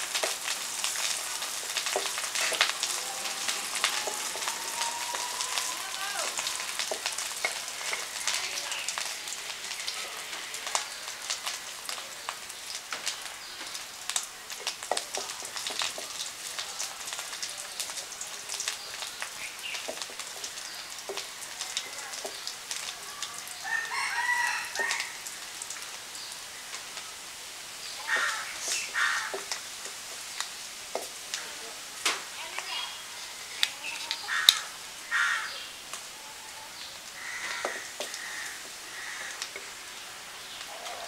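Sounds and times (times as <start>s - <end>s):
paste sizzling and crackling in oil: 0.0s - 41.0s
animal call: 2.8s - 6.8s.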